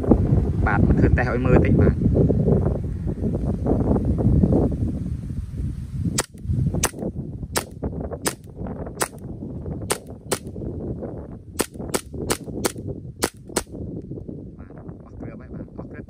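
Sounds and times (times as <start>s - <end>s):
airsoft pistol shots: 6.2s - 7.0s, 7.6s - 9.2s, 9.9s - 10.5s, 11.6s - 13.7s.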